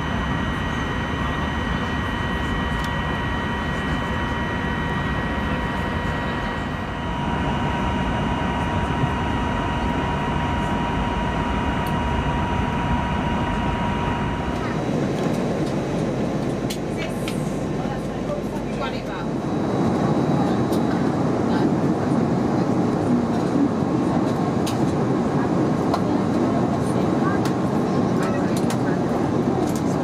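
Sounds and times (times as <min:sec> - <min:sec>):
airplane cabin noise: 0:00.0 - 0:30.0.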